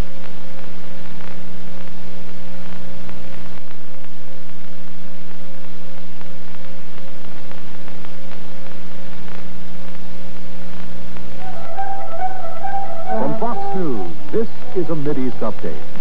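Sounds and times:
tape hiss and electrical hum: 0.0s - 16.0s
musical notes: 11.4s - 16.0s.

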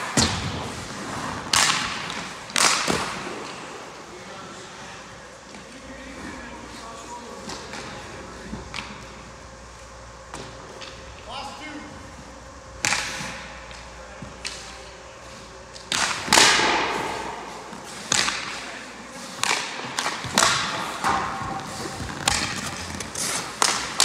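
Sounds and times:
pucks hitting pads and boards: 0.0s - 4.1s, 5.5s - 9.3s, 10.3s - 11.1s, 12.8s - 24.0s
sticks striking pucks: 1.4s - 3.7s, 12.8s - 24.0s.

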